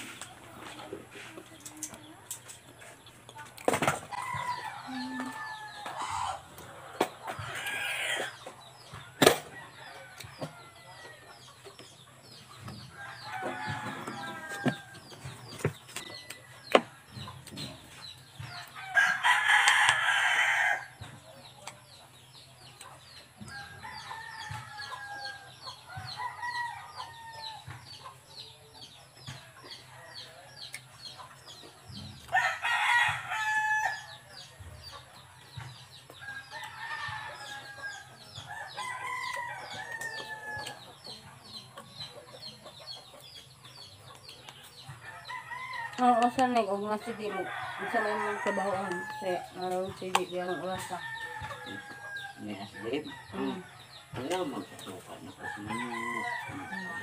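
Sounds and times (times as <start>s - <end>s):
chickens clucking: 0.0s - 18.7s, 27.0s - 32.4s, 34.0s - 57.0s
rooster crowing loudly: 55.7s - 57.0s.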